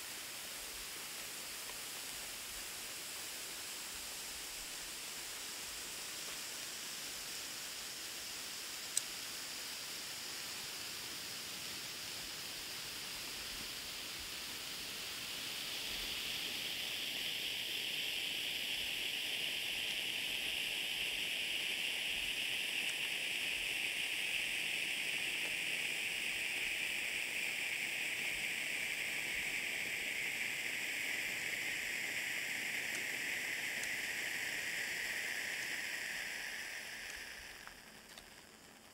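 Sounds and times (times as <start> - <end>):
flare torches hissing: 12.9 - 38.4.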